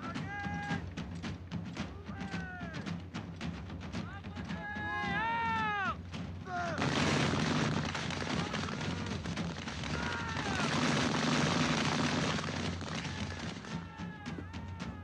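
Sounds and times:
musket fire crackle: 0:06.5 - 0:14.0
sharp gunshot cracks: 0:06.8 - 0:13.7.

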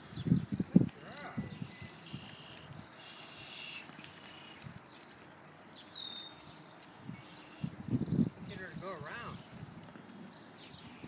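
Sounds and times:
short high bird chirps: 0:01.4 - 0:05.1
footsteps in mud: 0:02.0 - 0:07.4.

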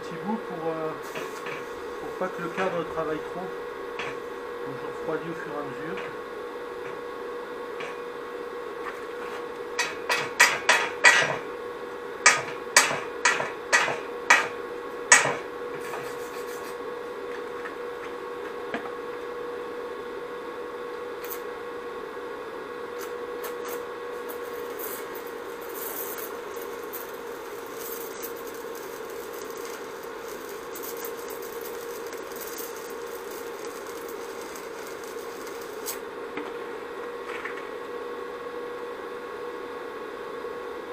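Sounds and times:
steady hum: 0:00.0 - 0:40.0
welding arc crackling: 0:00.8 - 0:05.3, 0:12.2 - 0:16.8, 0:21.2 - 0:21.5, 0:23.0 - 0:36.4.

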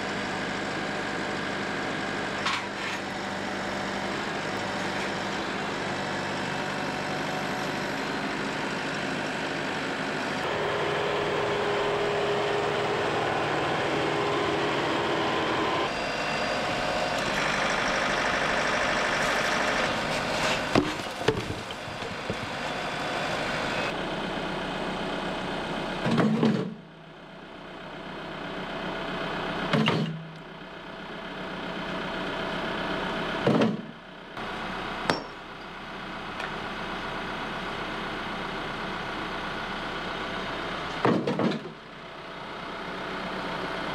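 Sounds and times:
tractor diesel engine running: 0:00.0 - 0:43.9
concrete blocks dropping thuds: 0:20.6 - 0:22.6
sledgehammer striking concrete: 0:35.1 - 0:35.4.

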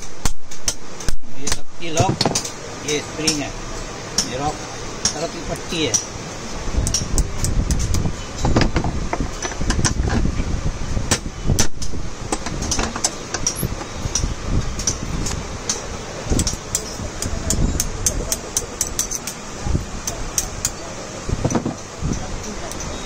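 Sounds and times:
hammer and punch tapping metal: 0:04.2 - 0:06.1, 0:15.7 - 0:19.4
metal parts knocking: 0:15.7 - 0:19.5.

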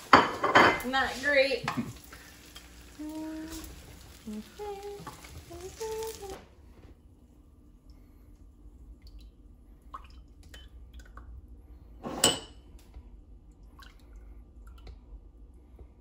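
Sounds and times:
dishware clinking: 0:00.1 - 0:01.0, 0:12.0 - 0:12.6.

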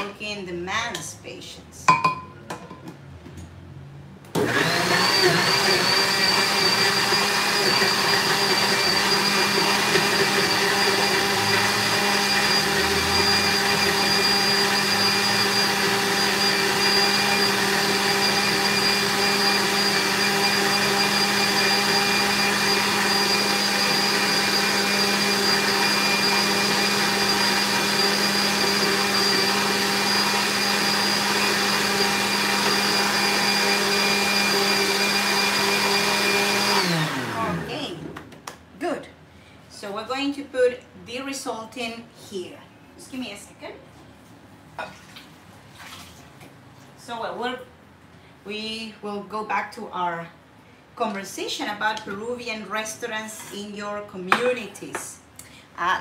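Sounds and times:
electric blender motor whine: 0:04.4 - 0:37.9.

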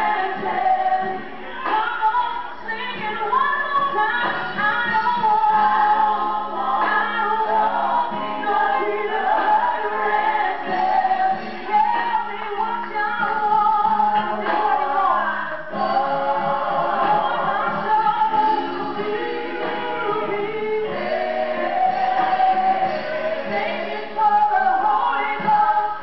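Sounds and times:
women singing gospel in harmony: 0:00.0 - 0:26.0.

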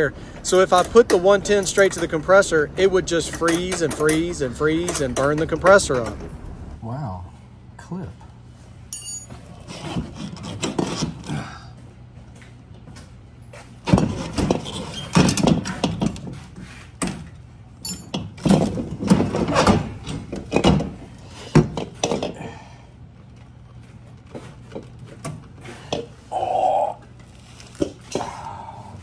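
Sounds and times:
steady low hum: 0:00.0 - 0:13.9
metal clunks and scrapes: 0:09.2 - 0:11.4, 0:13.6 - 0:22.4.

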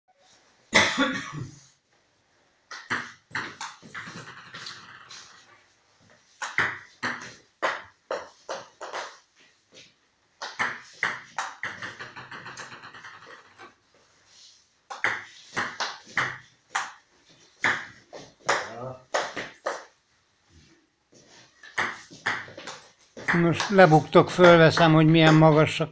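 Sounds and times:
table tennis balls bouncing on table: 0:02.7 - 0:05.5, 0:06.3 - 0:09.3, 0:10.4 - 0:13.8, 0:14.9 - 0:20.0, 0:21.6 - 0:25.8.

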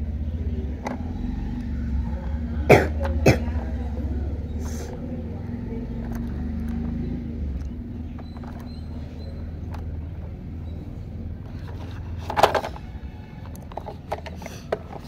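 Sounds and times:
short coughs: 0:02.7 - 0:03.5.

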